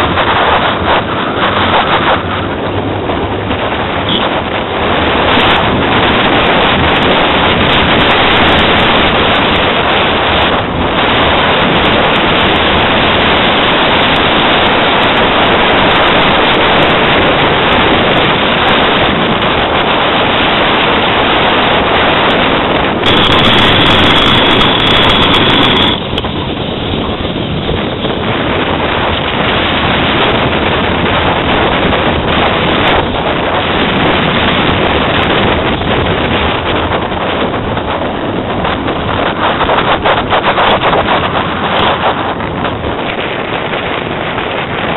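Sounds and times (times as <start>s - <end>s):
wind buffeting microphone: 0.0s - 44.9s
high steady squeal: 23.0s - 27.3s
small wheels rolling on asphalt: 23.0s - 33.2s.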